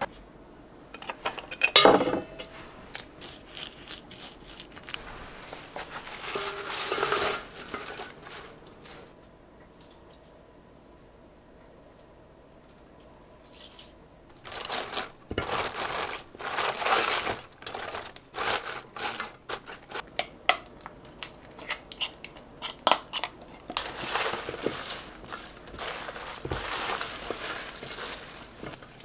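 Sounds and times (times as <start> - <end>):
vegetables rustling in a steel bowl: 1.0 - 9.1, 13.5 - 20.1, 22.6 - 29.0.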